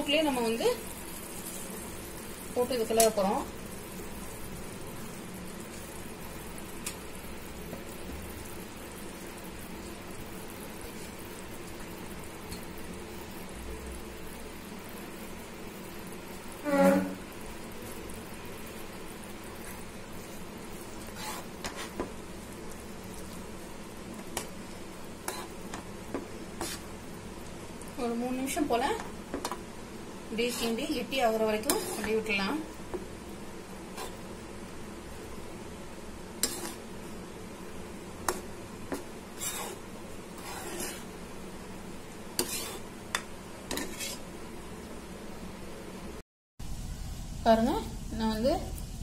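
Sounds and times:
low sizzle of simmering syrup: 0.0s - 49.0s
steady low hum: 12.8s - 49.0s
spoon scraping pan: 16.6s - 17.4s, 19.5s - 22.2s, 25.2s - 27.0s, 30.4s - 33.0s, 33.9s - 34.3s, 36.4s - 37.1s, 38.2s - 41.2s, 42.3s - 44.3s.

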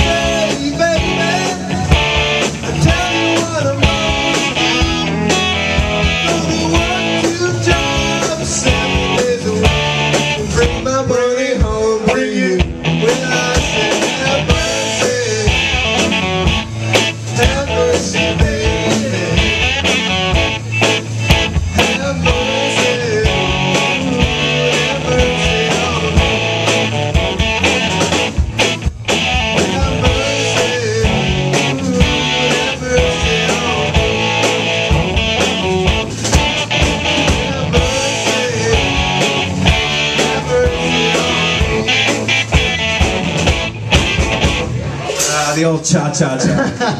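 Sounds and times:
live rock band playing: 0.0s - 46.9s
drum hits: 12.6s - 45.6s.

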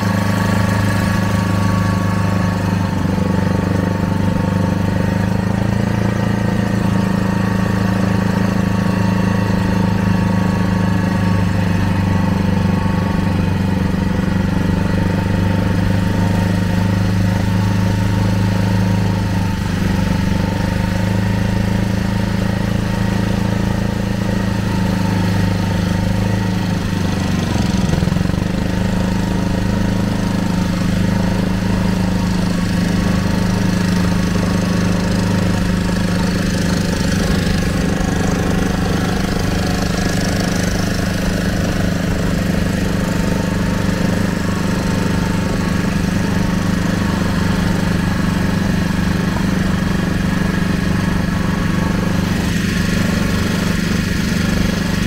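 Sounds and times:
boat engine humming: 0.0s - 55.0s.

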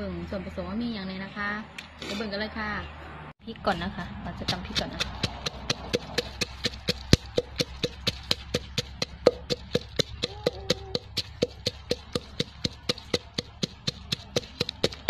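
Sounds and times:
pestle pounding in mortar: 4.4s - 15.0s.

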